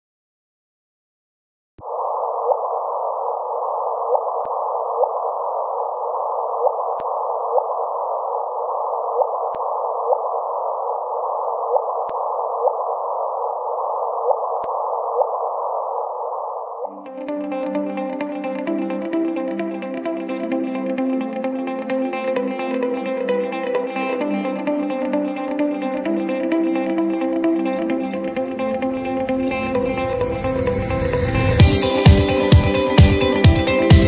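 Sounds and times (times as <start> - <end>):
short rising chirp: 28.6 - 32.5.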